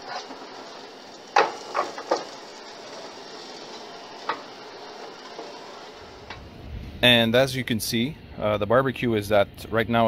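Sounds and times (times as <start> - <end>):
ribs knocking on grill grates: 0.0 - 6.5
faint steady hiss: 0.0 - 10.0.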